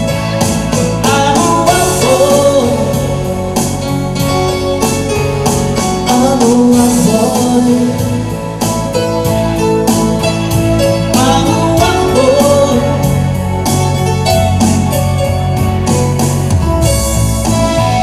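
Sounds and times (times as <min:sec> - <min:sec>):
reggae band playing: 0:00.0 - 0:18.0
man singing: 0:00.8 - 0:03.6, 0:05.8 - 0:08.6, 0:10.9 - 0:13.5.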